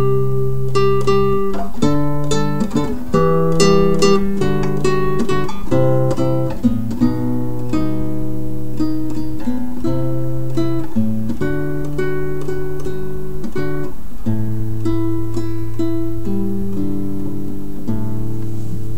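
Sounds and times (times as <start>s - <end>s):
acoustic guitar music: 0.0s - 18.9s.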